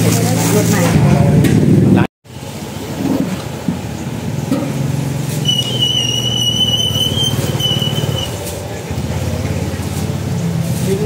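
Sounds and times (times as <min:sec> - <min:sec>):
traffic engine rumble: 0:00.0 - 0:11.0
high-pitched squeal: 0:05.3 - 0:08.6.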